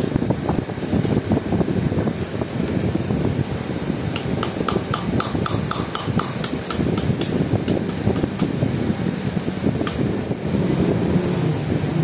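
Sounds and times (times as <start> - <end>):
steady low rumble: 0.0 - 12.0
hammer tapping on steel rod: 4.2 - 8.5.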